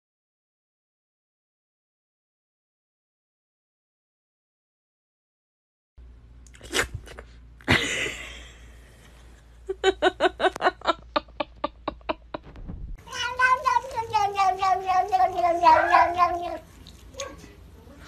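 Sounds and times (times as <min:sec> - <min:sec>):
cat chirping: 0:13.0 - 0:17.4
cat yowling: 0:13.0 - 0:17.4
cat hissing: 0:13.1 - 0:17.5.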